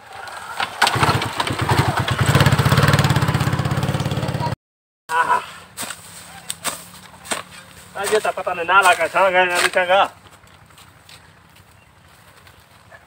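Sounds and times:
motorcycle engine revving: 0.2s - 4.6s
sharp chopping strikes: 5.8s - 9.8s.

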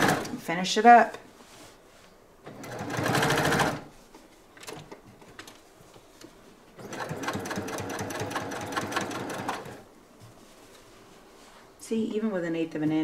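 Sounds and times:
sewing machine stitching: 0.0s - 0.4s, 2.5s - 3.9s, 6.8s - 9.8s.

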